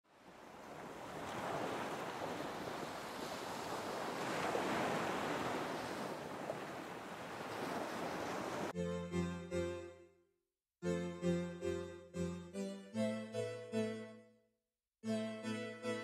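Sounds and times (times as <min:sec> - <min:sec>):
wind: 0:00.0 - 0:08.8
ocean surf washing: 0:00.2 - 0:08.8.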